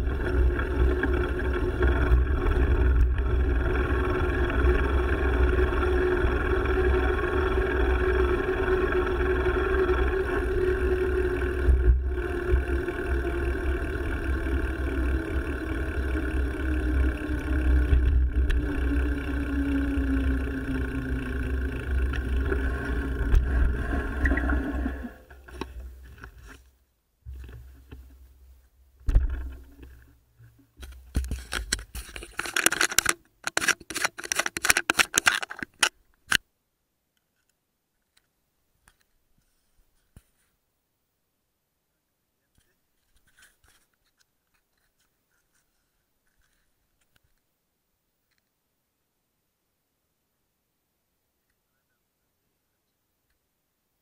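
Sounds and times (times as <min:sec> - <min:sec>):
mountain bike ride rumbling: 0:00.0 - 0:26.7, 0:27.3 - 0:36.4
scraping and rubbing noises: 0:29.2 - 0:36.0, 0:42.6 - 0:47.4.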